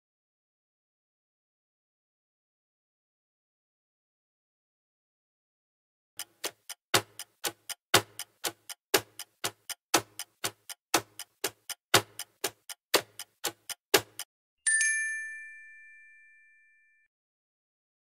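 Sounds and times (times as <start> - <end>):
clock ticking: 6.2 - 14.3
bell ringing: 14.7 - 17.1.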